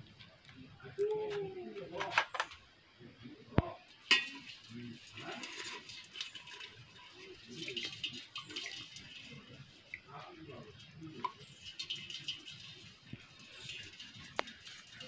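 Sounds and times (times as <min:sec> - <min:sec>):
metal cookware clinking: 0:04.0 - 0:09.4
small clicks and rustles: 0:11.2 - 0:15.0.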